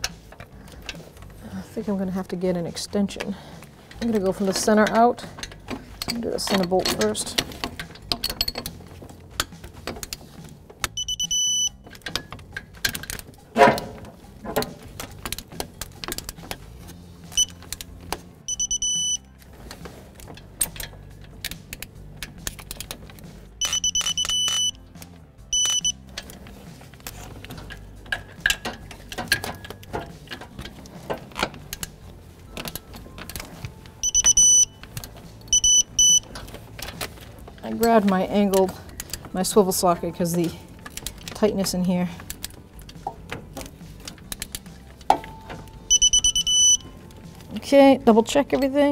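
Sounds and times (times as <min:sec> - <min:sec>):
torque wrench beeping: 0:10.8 - 0:12.0, 0:17.3 - 0:17.8, 0:18.5 - 0:19.3, 0:23.6 - 0:24.9, 0:25.5 - 0:26.2, 0:34.0 - 0:36.4, 0:45.8 - 0:47.0.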